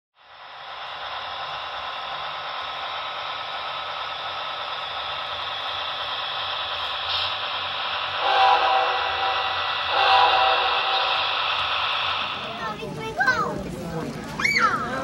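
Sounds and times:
steady hiss: 0:00.2 - 0:12.8
model locomotive horn blast: 0:08.2 - 0:11.2.

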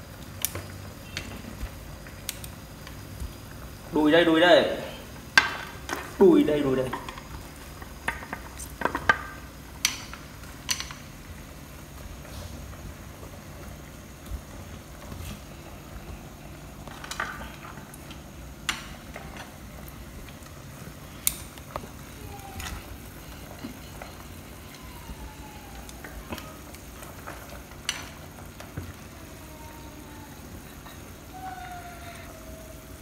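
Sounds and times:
pot simmering on gas burner: 0:00.0 - 0:33.0.

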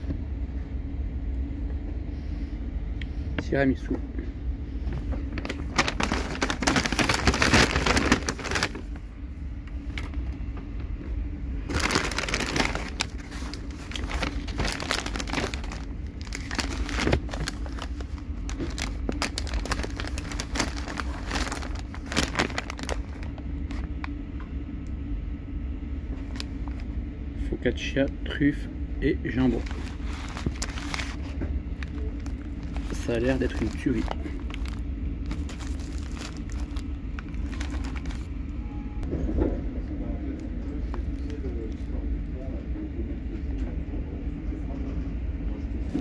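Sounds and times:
steady low hum: 0:00.0 - 0:46.0
paper wrapping crinkling: 0:05.0 - 0:09.0, 0:11.6 - 0:23.9, 0:29.4 - 0:38.4.

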